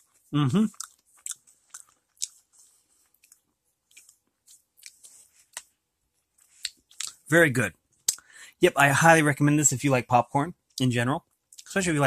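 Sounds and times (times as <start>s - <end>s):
popcorn being chewed: 0.0s - 7.3s.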